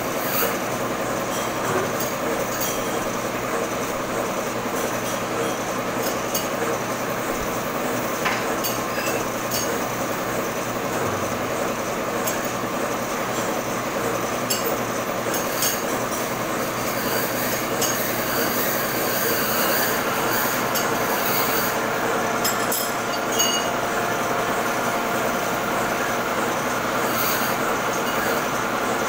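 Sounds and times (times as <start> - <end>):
metal lathe running: 0.0 - 29.0
sharp metallic clinks: 22.4 - 23.7.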